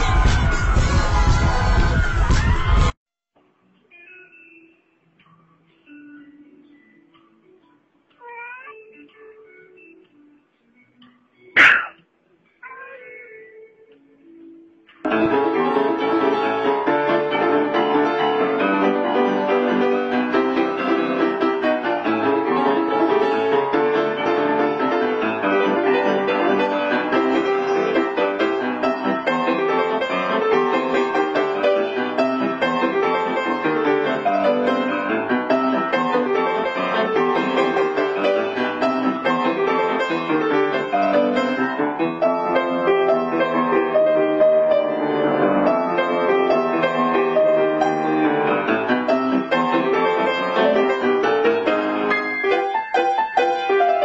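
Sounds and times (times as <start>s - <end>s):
piano music: 14.2s - 54.0s.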